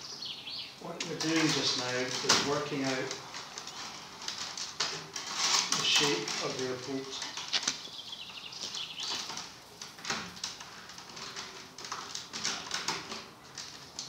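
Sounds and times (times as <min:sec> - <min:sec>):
tape pulled off roll: 0:01.0 - 0:07.9
rods clicking and knocking: 0:08.6 - 0:14.0.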